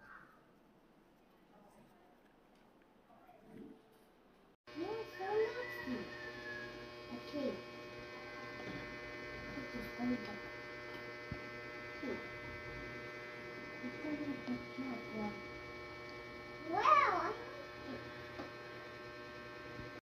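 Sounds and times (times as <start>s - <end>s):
steady electrical hum: 5.8s - 20.0s.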